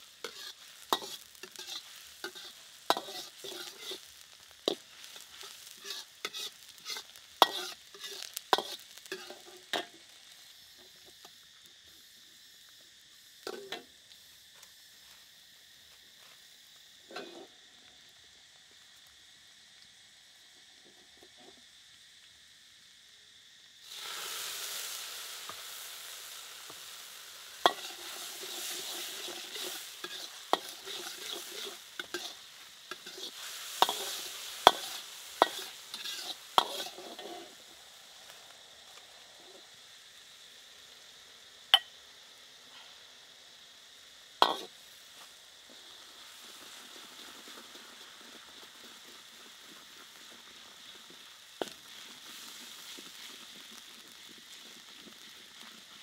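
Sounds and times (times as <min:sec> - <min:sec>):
garlic sizzling in hot oil: 0:00.0 - 0:56.0
metal ladle scraping a wok: 0:00.2 - 0:09.8, 0:17.1 - 0:17.5, 0:27.6 - 0:37.6.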